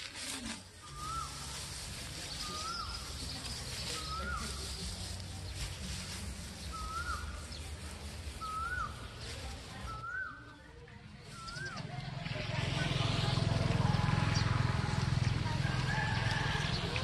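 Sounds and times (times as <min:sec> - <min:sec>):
dry straw rustling: 0:00.0 - 0:17.0
bird whistling: 0:08.4 - 0:09.0, 0:11.3 - 0:11.8.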